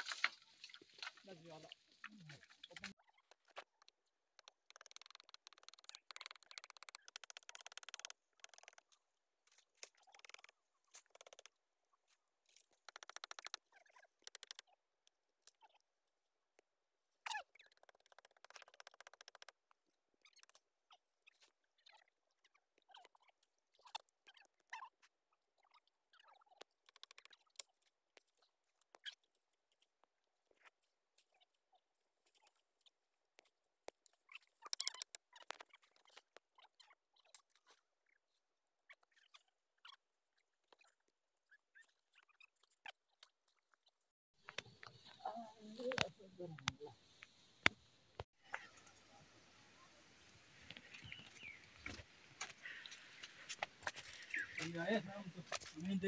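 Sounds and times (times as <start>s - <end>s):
twigs crackling and snapping: 0.0s - 11.5s.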